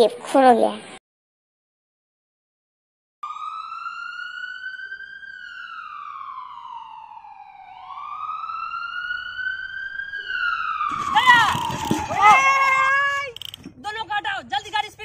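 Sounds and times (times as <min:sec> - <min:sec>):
wailing siren: 0:03.2 - 0:13.2.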